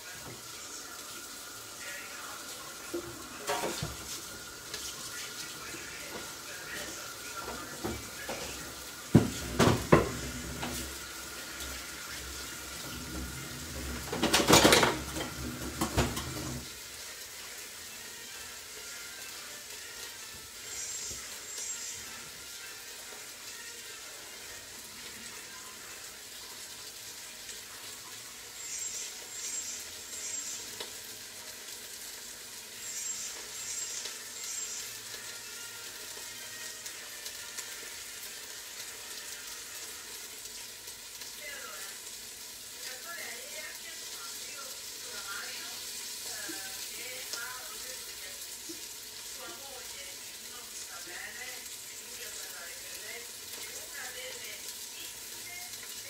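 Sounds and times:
food sizzling in pot: 0.0s - 56.0s
pots and utensils clattering: 2.8s - 5.4s, 6.1s - 16.8s.

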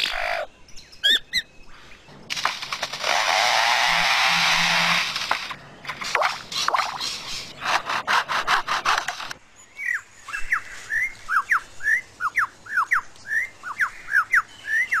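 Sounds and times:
bird rough rasping bursts: 2.2s - 9.4s.

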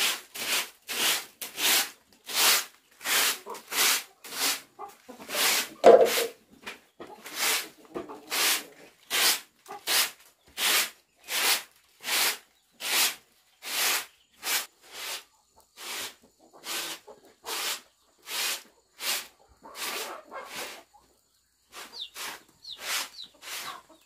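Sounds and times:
broom sweeping concrete floor: 0.0s - 6.4s, 7.2s - 20.9s, 21.7s - 24.0s.

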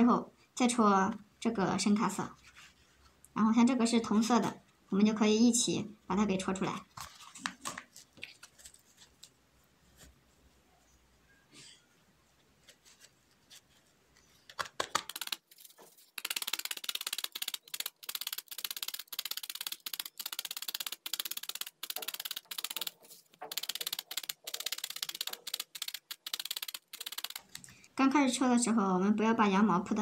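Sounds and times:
faint handling sounds: 2.3s - 3.3s, 6.9s - 14.8s
felting needle poking: 14.1s - 27.7s.

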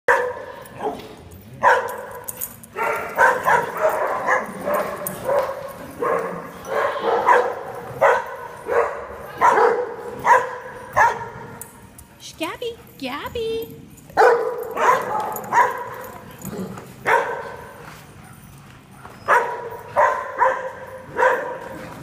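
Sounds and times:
dog barking: 0.1s - 1.0s, 1.6s - 2.1s, 2.8s - 11.4s, 14.2s - 16.1s, 17.0s - 17.6s, 19.3s - 21.8s.

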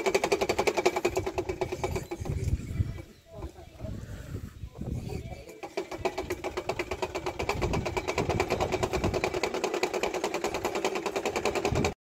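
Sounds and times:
wind rumbling on microphone: 1.1s - 9.5s, 11.4s - 12.0s
flag flapping in wind: 5.5s - 12.0s.

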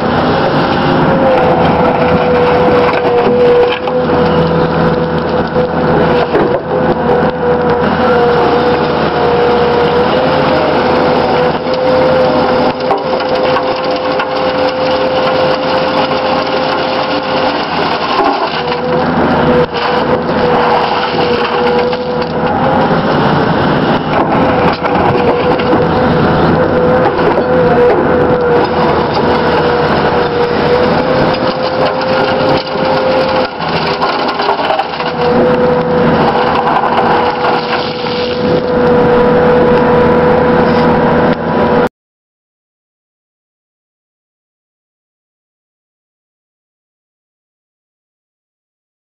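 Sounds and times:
excavator running: 0.0s - 41.9s
screening bucket rattling soil and stones: 28.7s - 35.4s.

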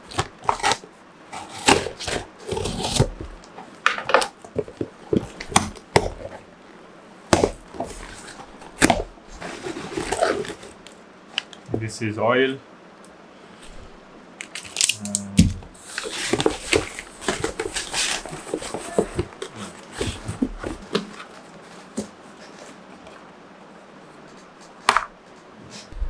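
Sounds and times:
packaging rustling: 7.4s - 11.6s, 14.4s - 15.1s, 15.8s - 22.6s
plastic bottles knocking: 16.2s - 21.1s.

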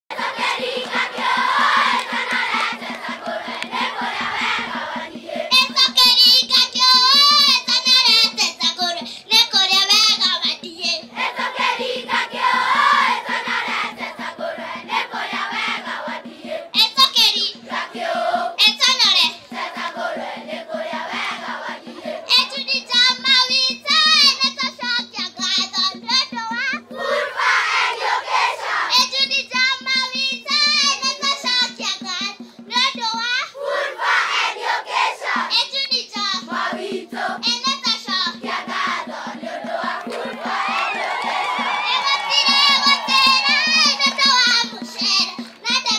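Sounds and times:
children's choir singing: 0.1s - 25.2s, 26.9s - 29.3s, 33.5s - 45.9s
quick ticking beat: 0.1s - 33.6s, 34.4s - 45.9s
girl singing into microphone: 5.4s - 11.1s, 16.7s - 17.7s, 18.5s - 19.5s, 21.8s - 27.0s, 28.9s - 33.6s, 35.4s - 36.5s, 37.4s - 39.1s, 41.8s - 45.9s.

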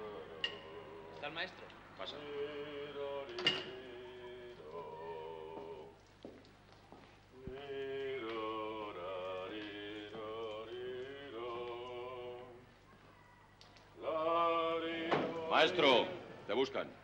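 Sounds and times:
person singing unaccompanied: 7.5s - 12.7s, 14.0s - 16.3s.

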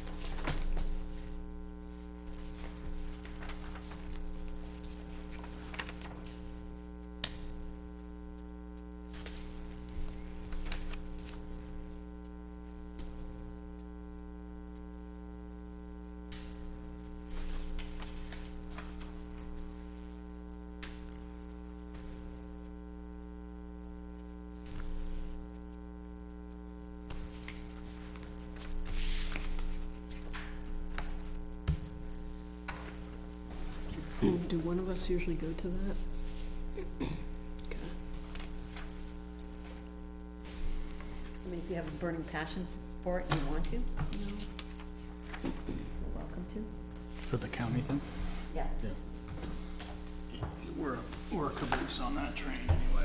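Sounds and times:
paper rustling and tapping: 0.0s - 1.4s, 2.2s - 6.6s, 7.2s - 7.6s, 9.1s - 11.7s, 16.3s - 19.8s, 27.0s - 34.3s, 38.1s - 42.1s, 43.1s - 46.0s
electrical mains hum: 0.0s - 53.0s.

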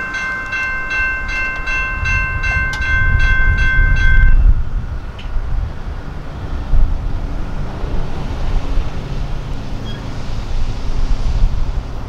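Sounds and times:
wind noise on microphone: 0.6s - 12.0s
cars and trucks driving past: 4.7s - 12.0s.

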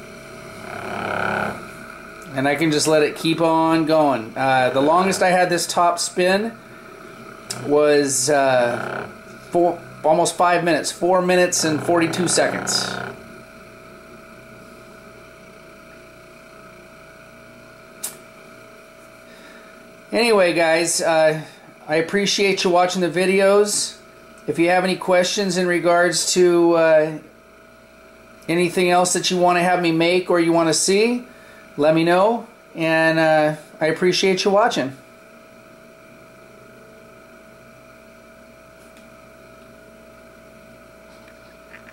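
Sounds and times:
spinning top humming: 0.0s - 16.0s.

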